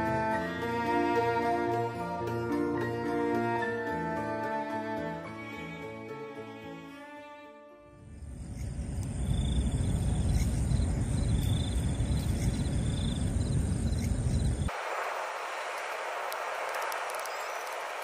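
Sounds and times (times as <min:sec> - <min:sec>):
insects trilling: 0:07.9 - 0:18.0
steady hiss: 0:08.4 - 0:18.0.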